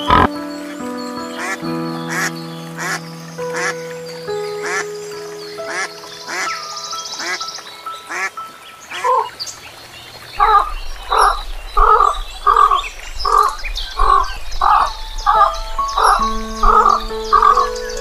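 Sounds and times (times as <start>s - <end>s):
background music: 0.0s - 9.4s, 14.7s - 18.0s.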